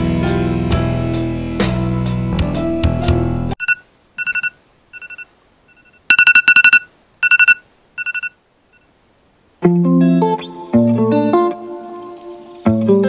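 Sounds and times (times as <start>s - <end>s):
rock music with guitar and drums: 0.0s - 3.6s, 9.7s - 13.0s
smartphone alarm beeps: 3.6s - 8.9s.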